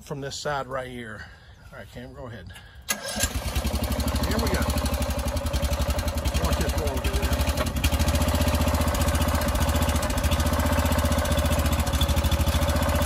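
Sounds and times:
small engine running: 3.1 - 13.0.

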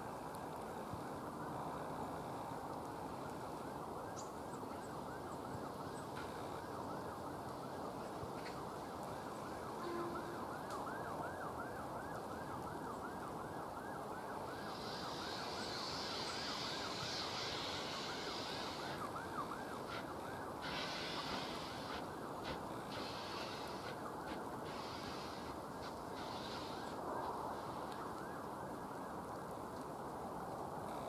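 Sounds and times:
high pulsing squeal: 14.5 - 27.7
loud steam hiss: 14.6 - 19.2, 19.8 - 27.0
steam locomotive moving: 14.6 - 27.8.

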